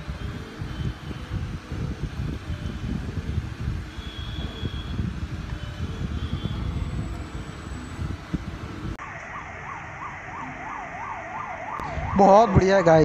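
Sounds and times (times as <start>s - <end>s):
emergency siren yelping: 5.7s - 13.0s.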